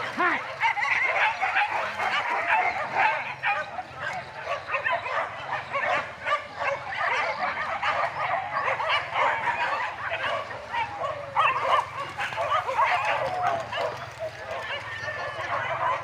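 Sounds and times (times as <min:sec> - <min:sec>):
pack of dogs yelping and barking: 0:00.0 - 0:16.0.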